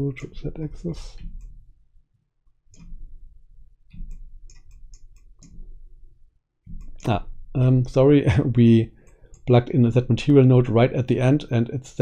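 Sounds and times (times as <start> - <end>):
low hum: 2.7 - 11.3
mouse and keyboard clicks: 3.9 - 5.7.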